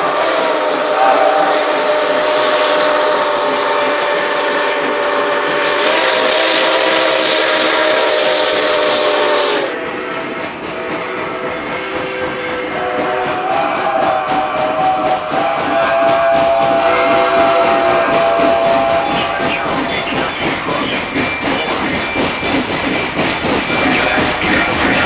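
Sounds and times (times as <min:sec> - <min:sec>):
chime steam whistle: 0:00.0 - 0:25.0
steam hiss: 0:00.0 - 0:25.0.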